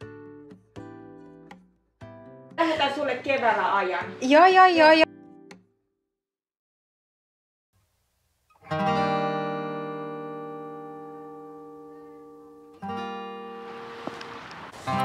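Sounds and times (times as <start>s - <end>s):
acoustic guitar chords strummed: 8.6s - 15.0s.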